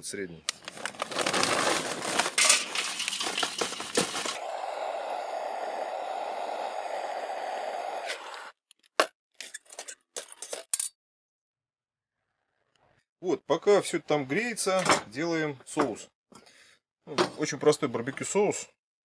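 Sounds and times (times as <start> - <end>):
charcoal clattering into metal: 1.2 - 4.4
gas torch hissing: 4.3 - 8.5.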